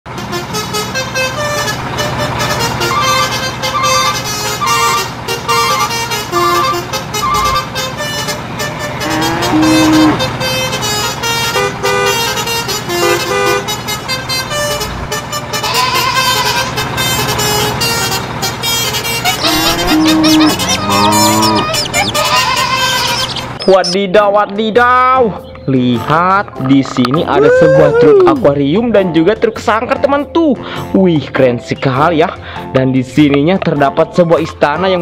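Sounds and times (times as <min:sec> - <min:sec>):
truck engine running: 0:00.1 - 0:29.8.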